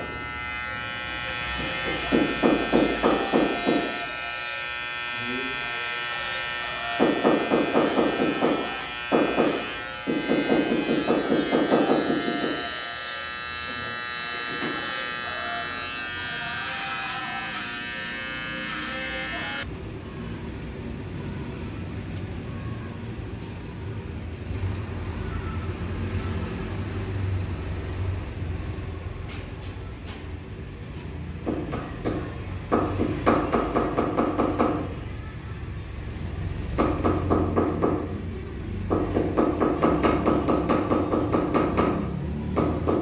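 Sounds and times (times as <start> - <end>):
hair trimmer buzzing: 0.0 - 19.7.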